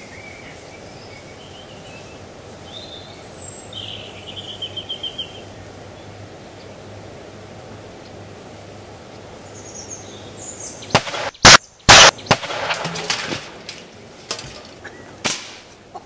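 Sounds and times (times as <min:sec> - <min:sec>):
very loud bangs: 0:10.9 - 0:14.6, 0:15.2 - 0:15.7
sharp crack: 0:10.9 - 0:15.8
debris and metal panels clattering: 0:11.9 - 0:15.7.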